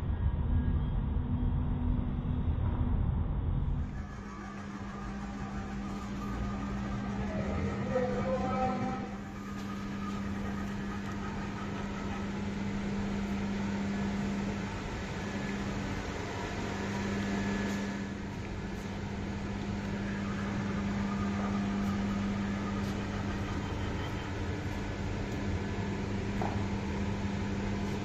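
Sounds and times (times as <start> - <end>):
ventilation hum: 0.0 - 28.0.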